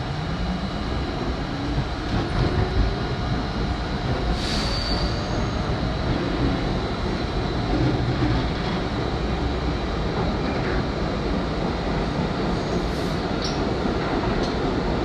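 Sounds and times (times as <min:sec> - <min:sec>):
train wheels rumbling on rail: 0:00.0 - 0:15.0
high wheel squeal: 0:04.4 - 0:05.7.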